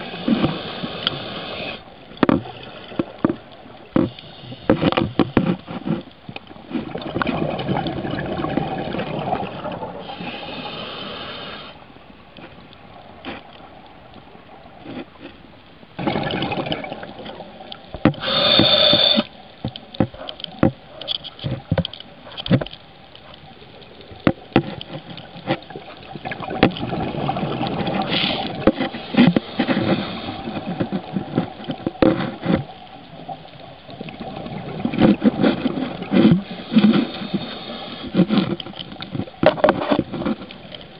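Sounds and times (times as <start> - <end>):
exhaled bubbles gurgling: 6.6 - 11.7, 16.0 - 19.3, 25.2 - 32.0, 33.1 - 39.5
scuba regulator hissing: 18.2 - 19.3.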